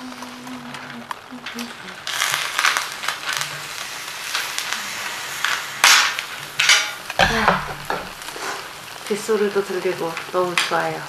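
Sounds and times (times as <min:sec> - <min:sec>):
oil sizzling and popping: 0:00.0 - 0:11.0
heavy knock: 0:07.2 - 0:08.4.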